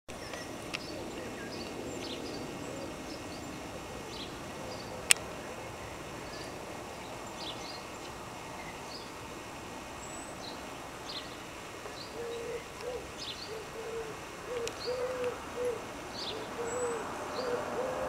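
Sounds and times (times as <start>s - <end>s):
distant jet engine rumble: 0.1s - 10.0s
small birds chirping: 0.1s - 18.0s.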